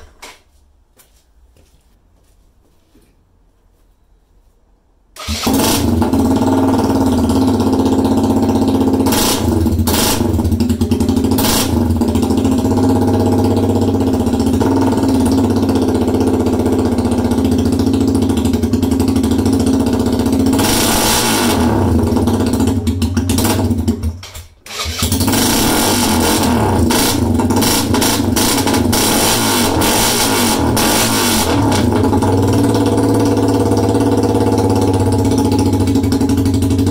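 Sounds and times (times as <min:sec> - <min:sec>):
motorcycle engine idling unevenly: 0:05.8 - 0:20.6, 0:21.8 - 0:25.4, 0:31.5 - 0:36.9.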